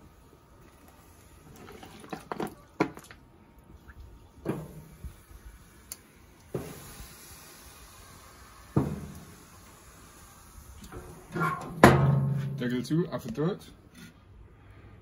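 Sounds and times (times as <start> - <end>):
wood knocking on charcoal: 8.7 - 9.4, 10.9 - 12.7.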